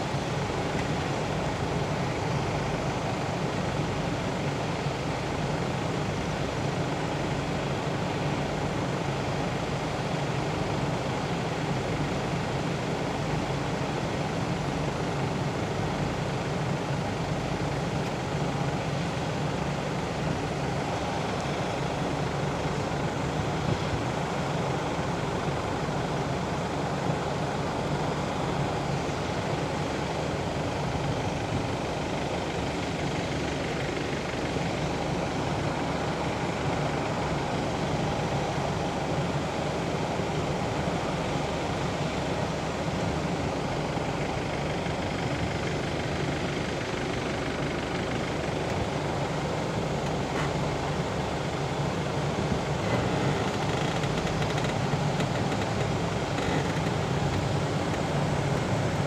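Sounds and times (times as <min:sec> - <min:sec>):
machinery and conveyor belts droning: 0:00.0 - 0:59.0.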